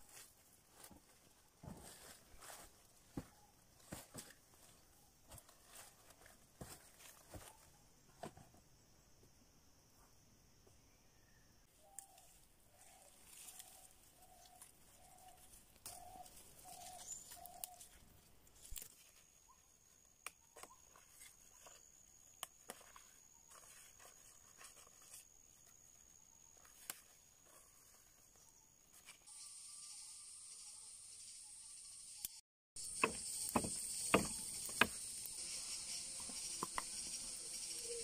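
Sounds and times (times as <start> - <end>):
twigs snapping and clicking: 11.9 - 12.4, 14.4 - 19.1, 20.1 - 23.1
thin insect whine: 21.6 - 38.0
high insect buzz: 29.0 - 38.0.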